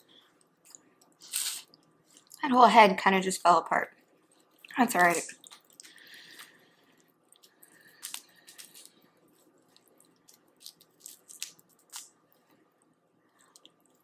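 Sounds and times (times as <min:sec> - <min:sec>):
wet squishes and smacks of eating: 0:04.2 - 0:12.2.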